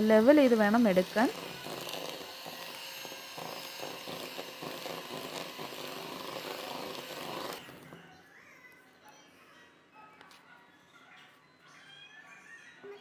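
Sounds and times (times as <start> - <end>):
electric hand mixer whirring: 0.0 - 8.0.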